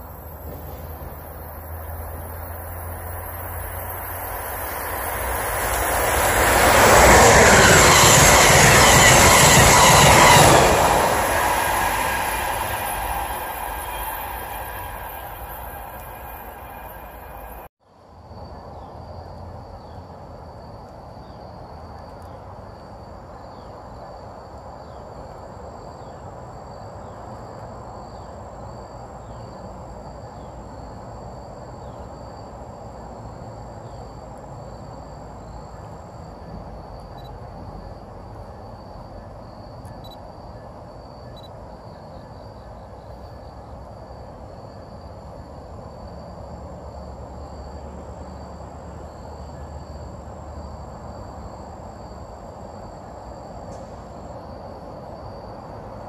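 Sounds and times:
insect chorus high trill: 0.0 - 17.7, 27.9 - 46.4.

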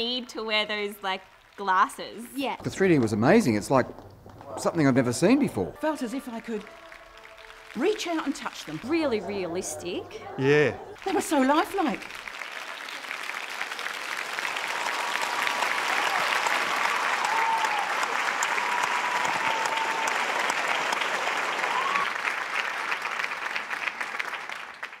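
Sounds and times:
audience applauding: 0.0 - 25.0.

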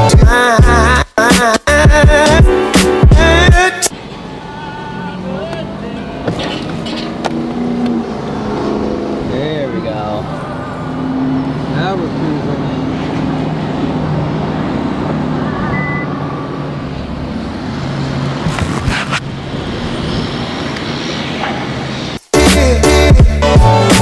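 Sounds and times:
road and wind noise: 2.5 - 24.0
car engine driving off: 3.2 - 22.2.

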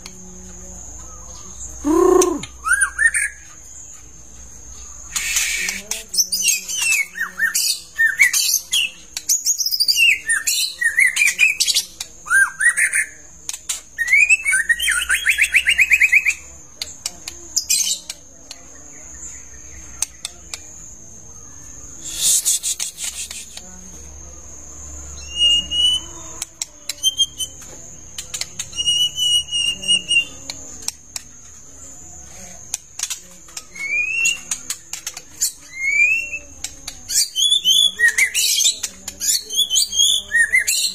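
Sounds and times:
bird singing whistles and trills: 1.4 - 3.5, 5.1 - 16.4, 25.2 - 30.6, 33.6 - 34.8, 35.4 - 40.9.

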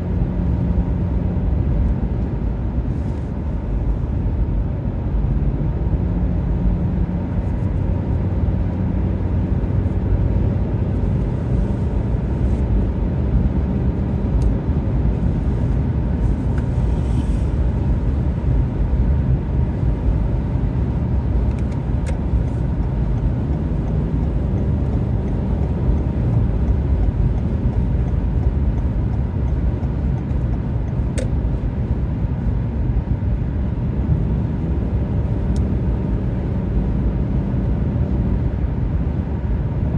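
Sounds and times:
car engine drone: 0.0 - 39.9
tyres rumbling on road: 0.0 - 39.9.

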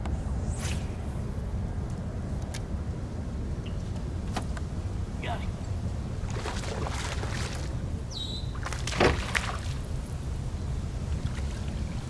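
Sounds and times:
steady low rumble: 0.0 - 12.0
water splashing against boat: 6.2 - 7.8, 8.6 - 9.9.

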